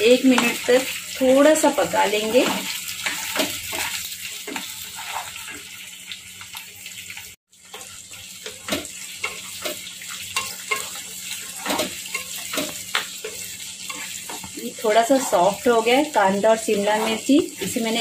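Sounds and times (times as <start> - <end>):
vegetables sizzling in oil: 0.0 - 18.0
spatula scraping and tapping pan: 1.5 - 5.8, 6.4 - 15.7.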